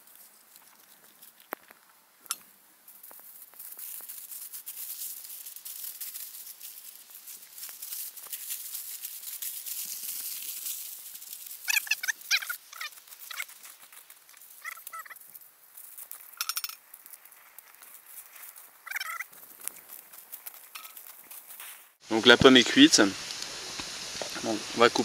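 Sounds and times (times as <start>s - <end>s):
aluminium foil crinkling: 0.0s - 22.0s
loud pitched calls: 11.6s - 13.7s, 14.6s - 15.2s, 18.8s - 19.3s.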